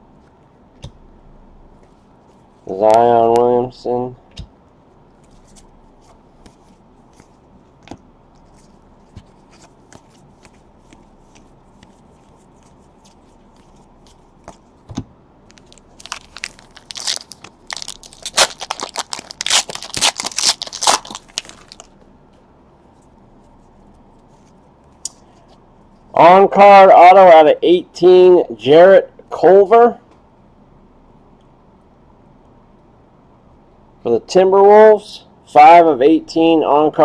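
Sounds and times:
trading cards clicking and rustling: 5.2s - 21.9s
foil wrapper tearing and crinkling: 15.5s - 21.9s.

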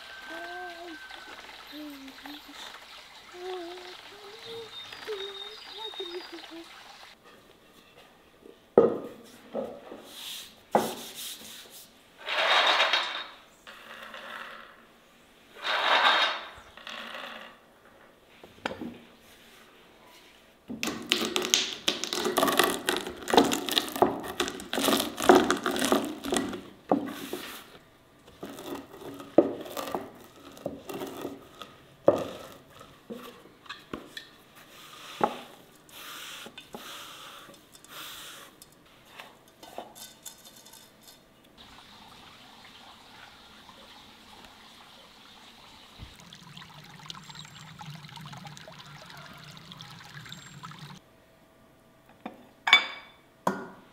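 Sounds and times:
utensils and dishes clinking: 39.4s - 41.3s.

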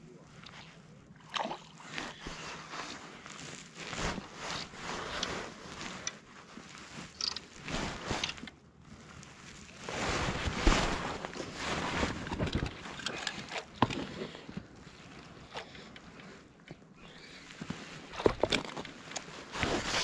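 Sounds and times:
water sloshing and splashing: 0.4s - 16.4s.

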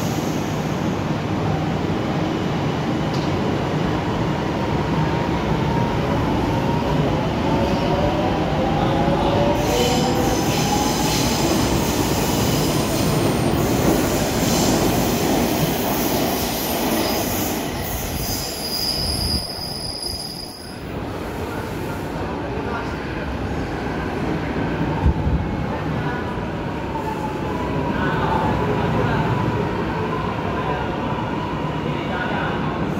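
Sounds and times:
high squeal: 16.5s - 20.9s.

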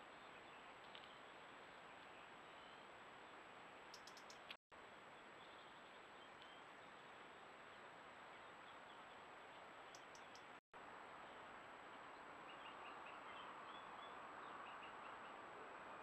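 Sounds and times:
faint ticks: 3.9s - 4.6s, 9.8s - 10.6s.

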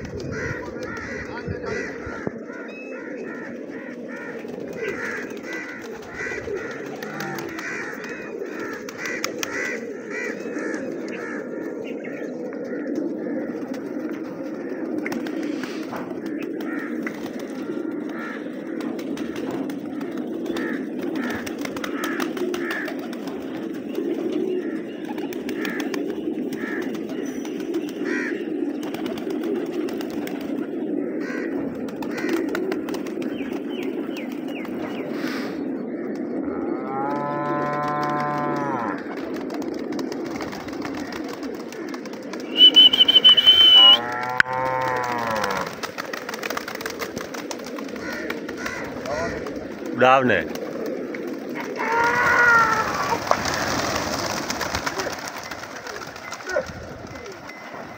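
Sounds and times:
pigeons cooing: 0.0s - 57.9s
cattle mooing: 6.7s - 7.6s, 36.5s - 39.1s, 43.4s - 45.8s.

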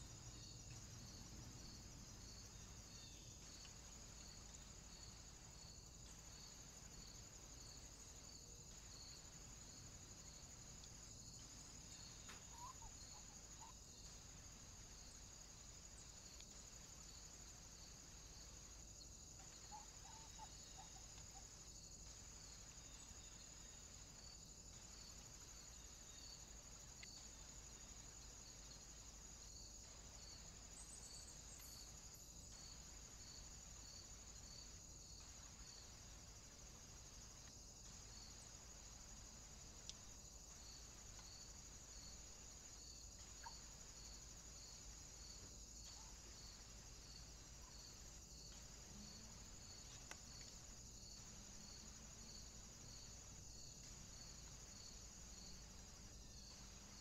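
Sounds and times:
crickets chirping: 0.0s - 57.0s
low hiss: 0.0s - 57.0s
faint ticks: 3.4s - 4.7s, 10.7s - 13.8s, 16.2s - 16.8s, 26.8s - 27.6s, 31.3s - 35.9s, 37.2s - 42.0s, 43.2s - 55.3s.

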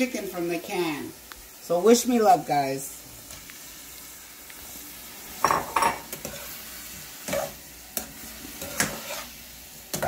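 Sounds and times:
low sizzle: 0.0s - 10.0s
metal spoon scraping a pot: 8.6s - 9.3s.

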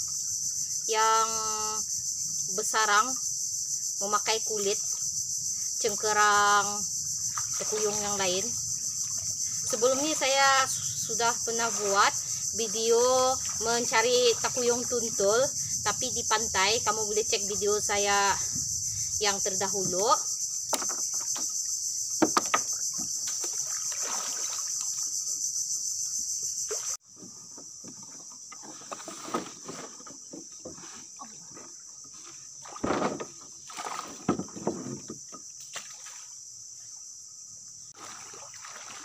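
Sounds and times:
insect chorus: 0.0s - 39.0s
short knocks and rustles: 26.7s - 35.9s.

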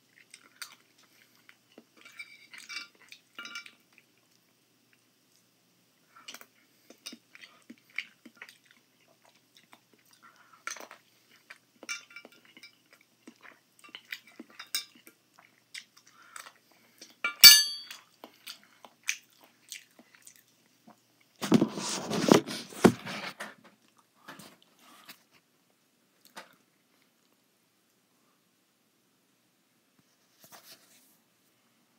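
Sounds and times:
chewing: 0.0s - 5.5s, 6.1s - 17.2s, 18.0s - 21.4s
spoon clinking on glass dish: 17.3s - 18.0s.

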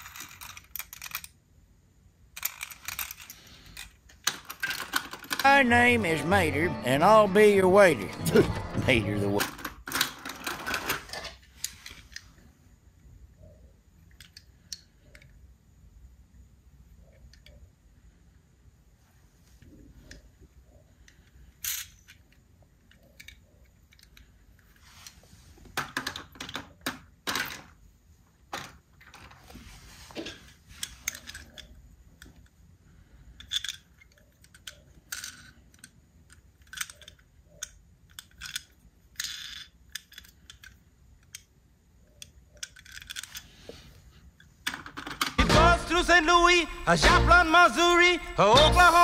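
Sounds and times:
toy cars clicking and scraping: 0.0s - 1.4s, 2.3s - 5.5s, 9.4s - 12.5s, 14.0s - 15.5s, 21.0s - 27.8s, 28.5s - 45.4s.

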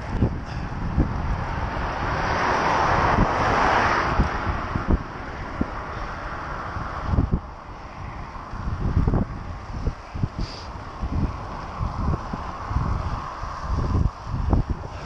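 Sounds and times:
car passing with tyre noise: 0.0s - 15.0s
wind buffeting microphone: 0.0s - 15.0s.

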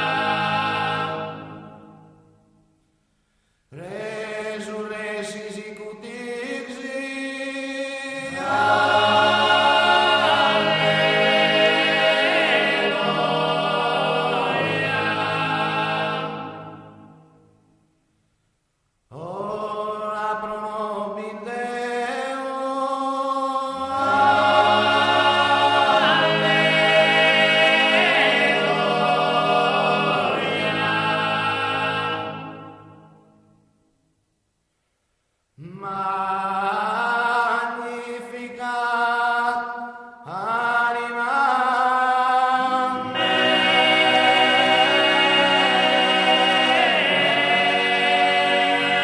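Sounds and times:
male voices singing a cappella: 3.8s - 16.4s, 19.1s - 32.3s, 35.6s - 49.0s.

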